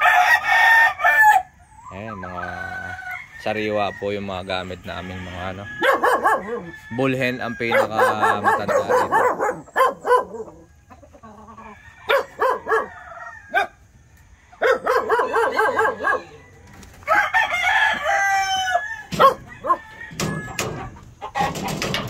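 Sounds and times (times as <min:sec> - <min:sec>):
roosters crowing: 0:00.0 - 0:22.0
chickens clucking: 0:01.1 - 0:22.0.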